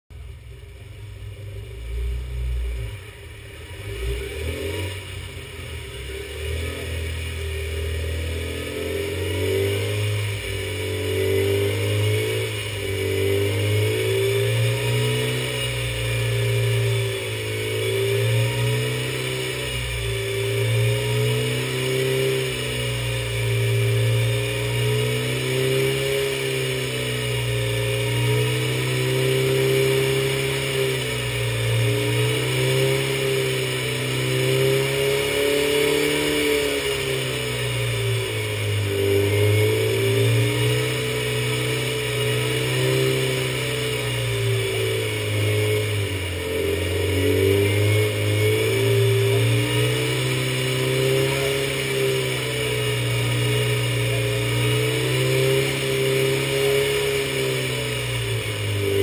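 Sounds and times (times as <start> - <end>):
four-cylinder engine running: 0.1 - 59.0.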